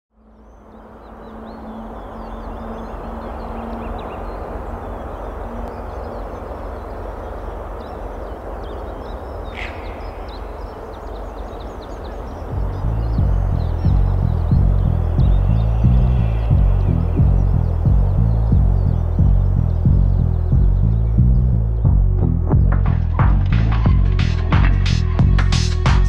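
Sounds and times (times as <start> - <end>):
small birds chirping: 0.2 - 25.0
low rumble: 0.6 - 25.5.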